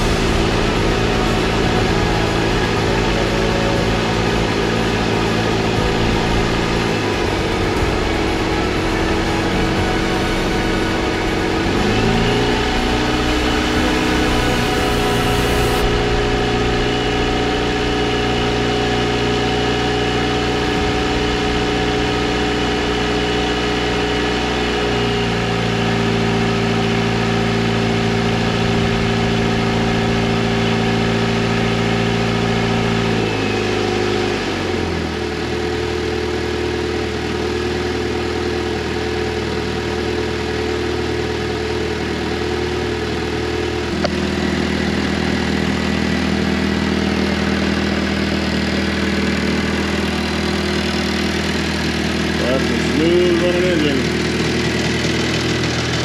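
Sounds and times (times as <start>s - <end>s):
aircraft engine idling: 0.0s - 24.3s, 43.9s - 56.0s.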